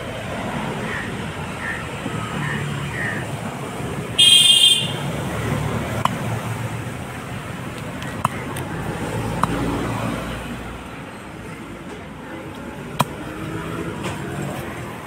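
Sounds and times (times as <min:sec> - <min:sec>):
road traffic hum: 0:00.0 - 0:15.0.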